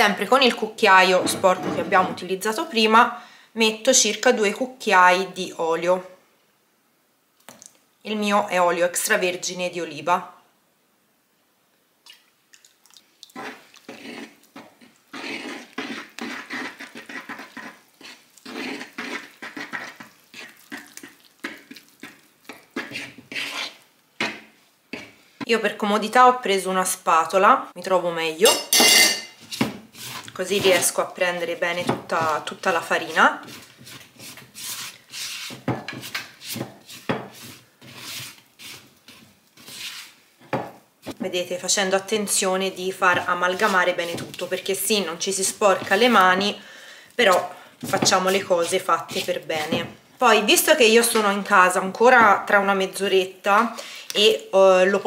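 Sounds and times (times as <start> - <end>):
fork stirring wet dough: 12.6 - 25.4, 28.5 - 46.6, 47.2 - 51.4.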